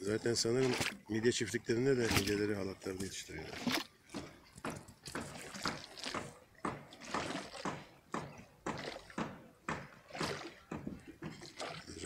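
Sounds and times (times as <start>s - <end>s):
waves lapping against pier: 0.0s - 12.0s.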